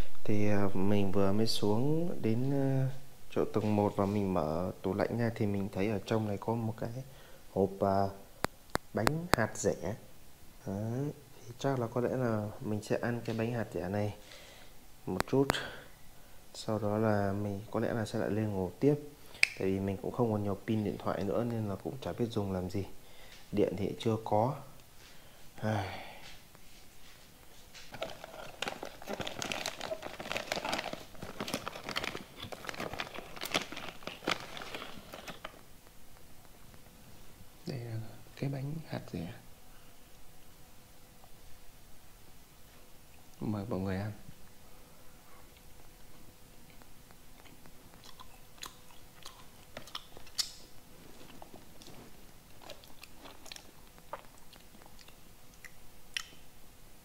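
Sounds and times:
person chewing dry cake: 27.9 - 35.6, 45.5 - 56.4
packaging crinkling and tearing: 27.9 - 35.7, 51.2 - 55.0.

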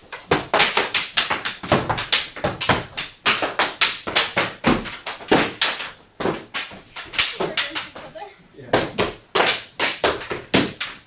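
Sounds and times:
wooden sticks clacking: 0.1 - 8.2.

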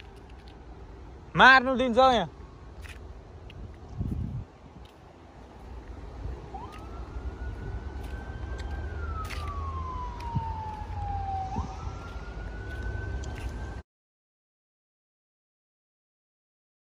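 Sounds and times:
siren wailing: 5.6 - 13.8.

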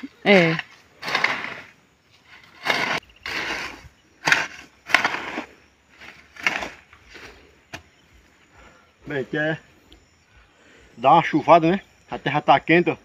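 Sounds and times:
hoe chopping through soil: 0.2 - 7.9.

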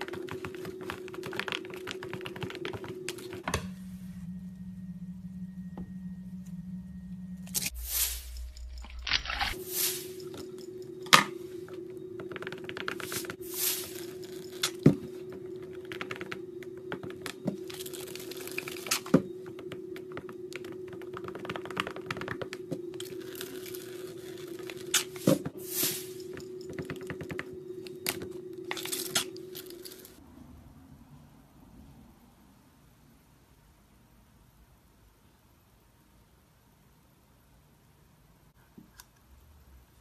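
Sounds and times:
steady low hum: 0.0 - 30.2.

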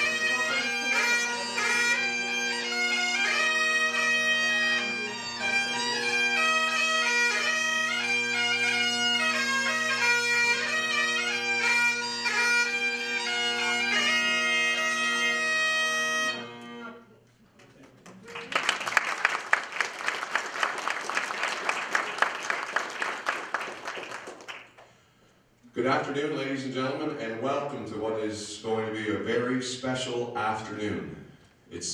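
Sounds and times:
bagpipe chanter melody: 0.0 - 17.0
bagpipe drones: 0.0 - 17.0.

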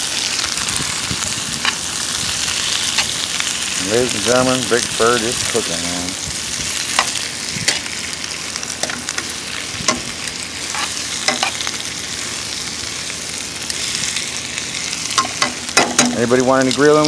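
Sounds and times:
vegetables sizzling in a skillet: 0.0 - 17.0
metal tongs clicking against pan: 10.8 - 11.6.

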